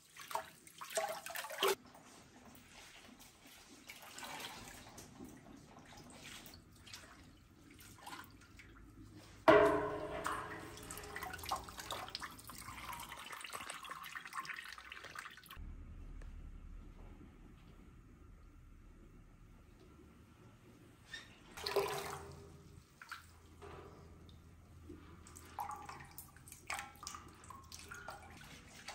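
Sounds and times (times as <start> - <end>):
liquid sloshing and dripping in pot: 0.0 - 15.6, 21.6 - 28.9.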